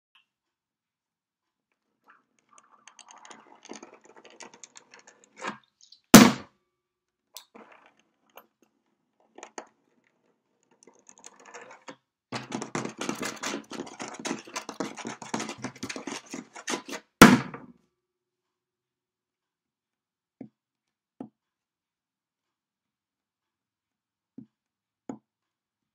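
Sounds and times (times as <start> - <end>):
fingers scratching on wood: 12.4 - 17.2.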